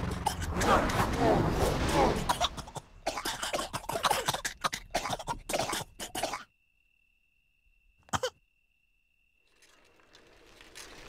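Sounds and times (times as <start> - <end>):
cartoon voices coughing: 2.2 - 6.5, 8.1 - 8.4.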